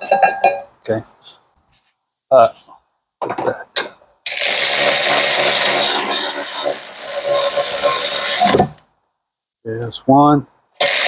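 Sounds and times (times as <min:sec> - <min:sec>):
electric ratchet driving a bolt: 0:04.3 - 0:08.6, 0:10.8 - 0:11.0.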